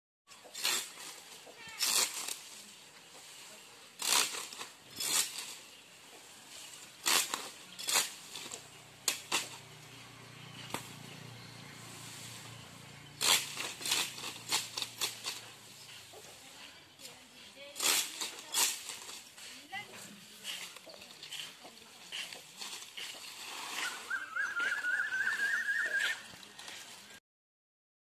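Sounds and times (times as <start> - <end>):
palm frond rustling: 0.3 - 27.2
leaflets tearing: 1.8 - 2.7, 4.0 - 5.7, 6.7 - 9.8, 13.2 - 15.6, 17.7 - 19.3.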